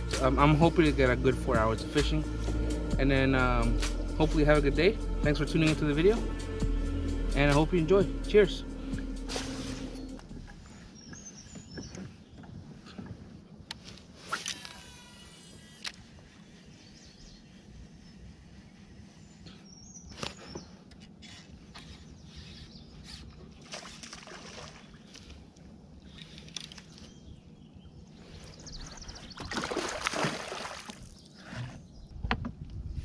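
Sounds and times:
steady low hum: 0.0 - 33.0
fishing reel reeling: 14.2 - 16.4
water sloshing around kayak: 21.7 - 27.3, 28.2 - 32.1.

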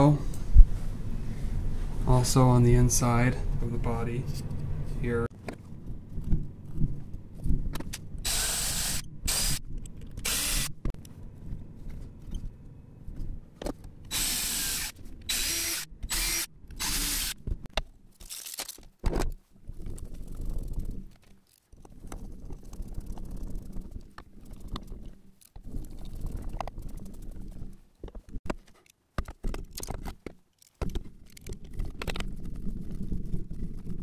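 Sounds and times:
cordless drill driving screws: 14.1 - 17.4.

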